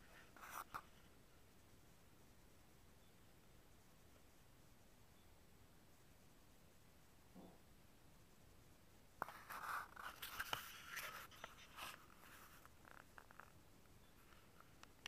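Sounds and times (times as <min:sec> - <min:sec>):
scratchy rustling: 0:00.0 - 0:01.1, 0:09.2 - 0:13.6.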